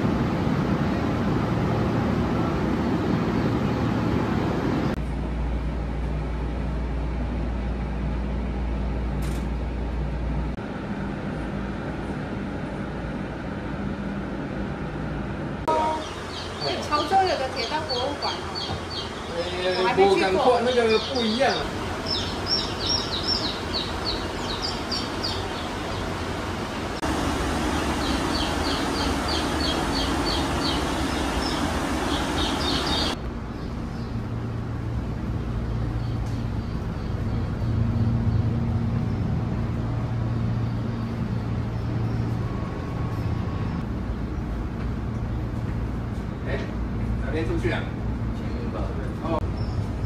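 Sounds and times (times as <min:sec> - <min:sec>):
birds chirping: 0:15.7 - 0:50.0.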